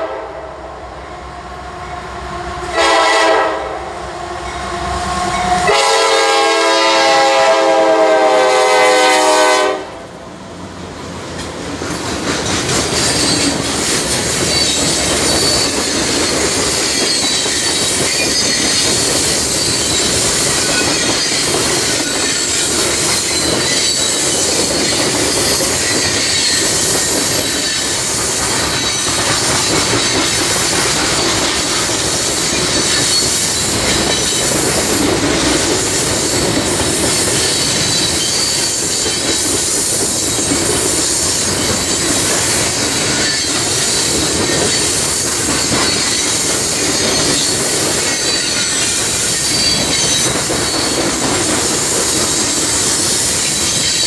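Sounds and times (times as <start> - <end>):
train wheels on rails: 0.0 - 54.0
wheel squeal: 13.0 - 30.5, 32.2 - 34.8, 36.2 - 39.6, 40.2 - 51.4, 52.0 - 54.0.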